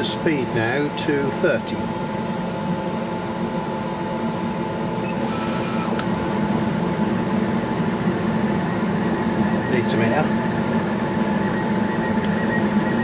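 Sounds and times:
laser cutter machine hum: 0.0s - 13.0s
cutting head whine and click: 5.1s - 6.4s, 9.6s - 10.2s, 12.0s - 13.0s.

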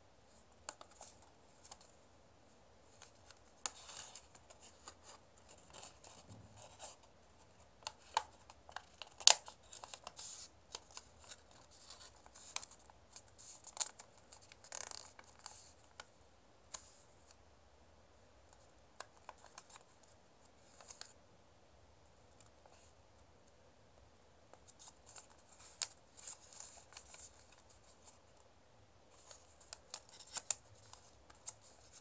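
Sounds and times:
paper folding and crinkling: 0.6s - 2.0s, 2.8s - 16.1s, 18.5s - 21.2s, 24.5s - 28.4s, 29.1s - 32.0s.

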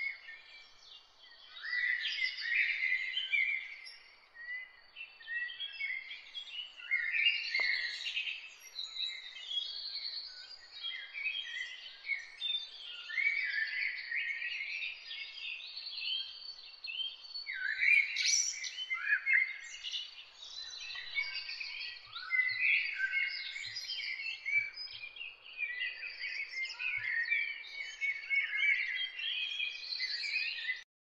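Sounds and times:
birds chirping: 0.0s - 30.8s.

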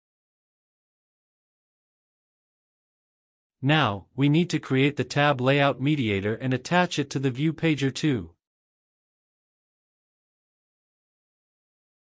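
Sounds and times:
person narrating: 3.6s - 8.4s.

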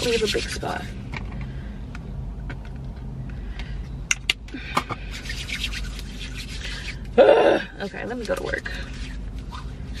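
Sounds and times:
hands rubbing together: 0.0s - 0.8s, 5.1s - 7.1s.

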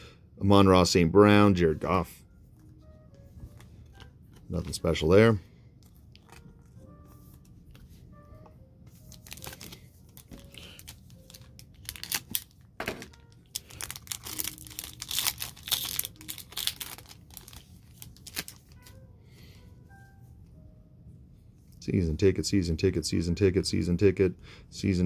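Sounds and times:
wrapper tearing and crinkling: 9.1s - 18.9s.

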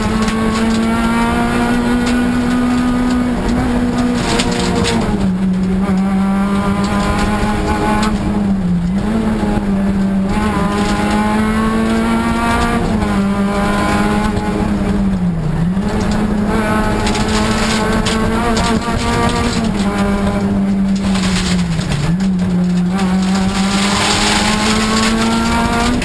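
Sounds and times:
car engine at high revs: 0.0s - 26.0s.

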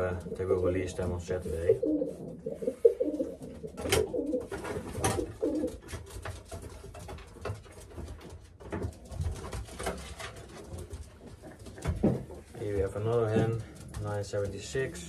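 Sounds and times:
pigeons cooing: 0.0s - 5.9s
knocks and rustles: 3.2s - 14.6s.

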